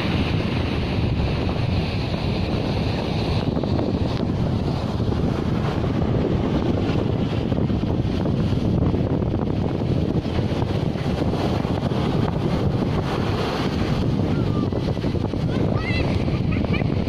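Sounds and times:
storm waves breaking on beach: 0:00.0 - 0:17.0
wind buffeting microphone: 0:00.0 - 0:17.0.

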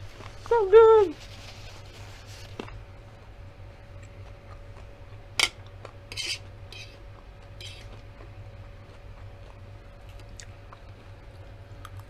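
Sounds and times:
quiet chewing: 0:00.0 - 0:00.6, 0:03.9 - 0:12.0
fork scraping through food: 0:06.1 - 0:07.0, 0:07.6 - 0:08.0.

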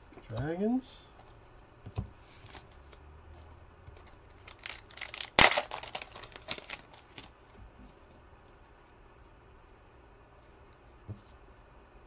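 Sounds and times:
foil wrapper crinkling: 0:04.1 - 0:07.3
foil wrapper ripping: 0:04.3 - 0:07.3.

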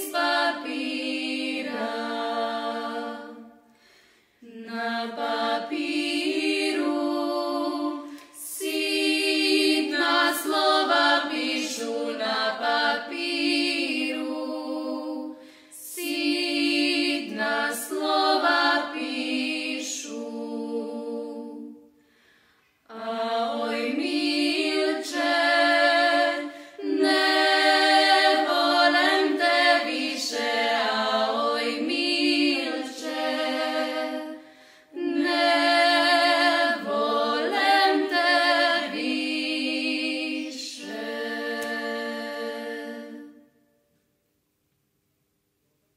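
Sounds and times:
women's vocal group singing: 0:00.0 - 0:22.0, 0:22.7 - 0:43.6.

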